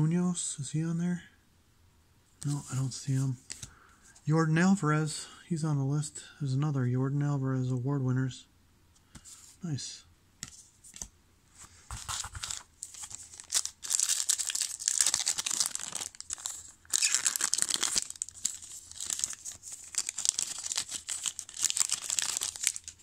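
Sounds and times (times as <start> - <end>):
foil wrapper crinkling and tearing: 12.0 - 23.0.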